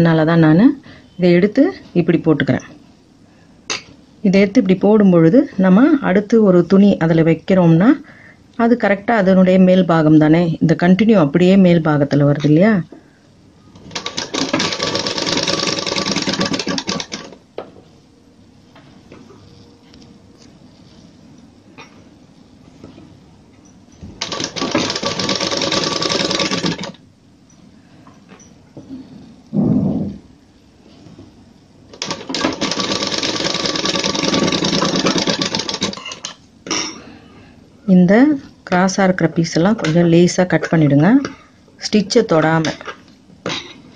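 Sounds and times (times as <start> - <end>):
sewing machine stitching: 13.9 - 17.4, 24.2 - 27.0, 32.0 - 36.3.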